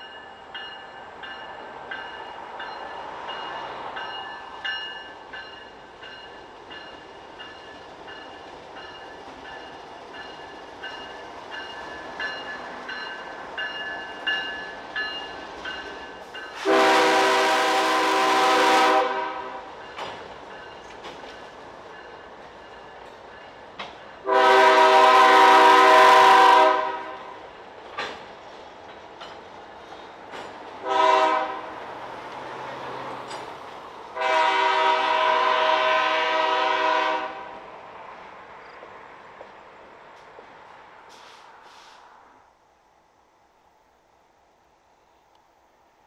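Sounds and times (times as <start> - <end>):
locomotive air horn: 16.6 - 19.7, 24.2 - 27.4, 30.8 - 31.7, 34.2 - 37.6
faint clicks: 44.6 - 45.6.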